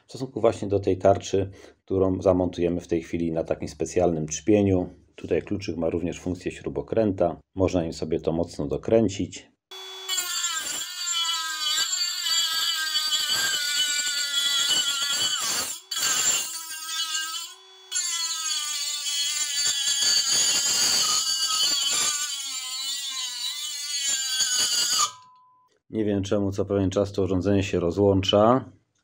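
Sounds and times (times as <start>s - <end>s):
grinder cutting metal: 9.7s - 25.3s.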